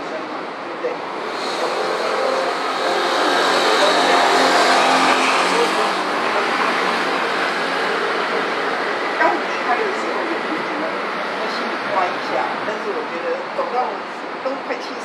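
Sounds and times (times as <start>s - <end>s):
cars passing: 0.0s - 14.6s
motor scooters passing: 1.2s - 11.0s.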